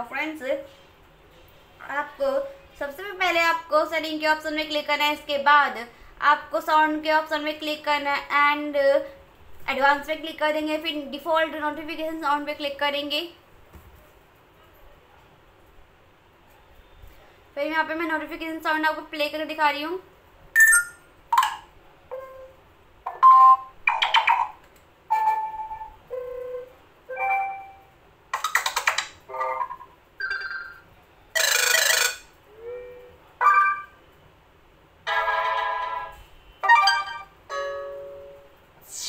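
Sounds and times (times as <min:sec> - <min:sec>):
phone notification chimes: 0:20.6 - 0:21.0, 0:36.6 - 0:37.3.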